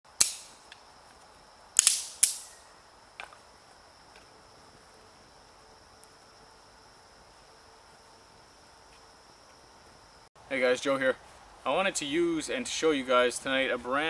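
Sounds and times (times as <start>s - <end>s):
high thin insect trill: 0.1s - 14.0s
loud sharp cracks: 0.2s - 0.7s, 1.8s - 2.6s.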